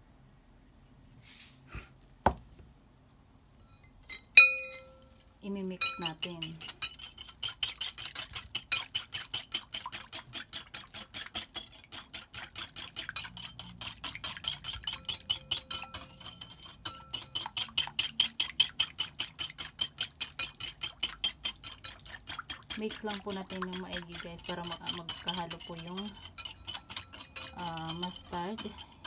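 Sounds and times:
whisk clicking against glass bowl: 0:05.8 - 0:29.0.

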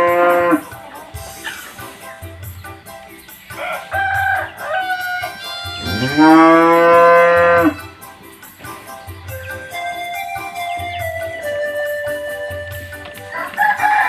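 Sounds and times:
cow mooing: 0:00.0 - 0:00.8, 0:05.0 - 0:07.9
pop music with flute and bass: 0:00.0 - 0:02.8, 0:03.6 - 0:08.2, 0:09.0 - 0:14.0.

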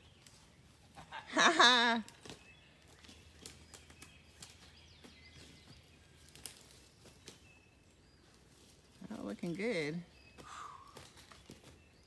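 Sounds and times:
rustles and clicks in dry leaves: 0:00.0 - 0:12.0
faint bird chirps: 0:02.4 - 0:12.0.

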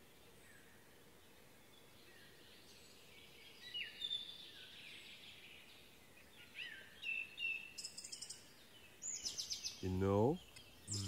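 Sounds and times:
faint steady hiss: 0:00.0 - 0:11.0
birds chirping and whistling: 0:09.0 - 0:11.0.

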